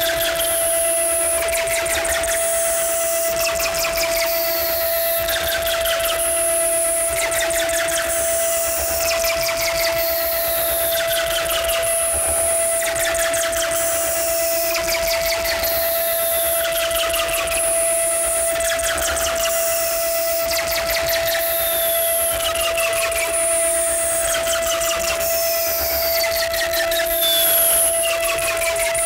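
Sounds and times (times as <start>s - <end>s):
steady held electronic tone: 0.0s - 29.0s.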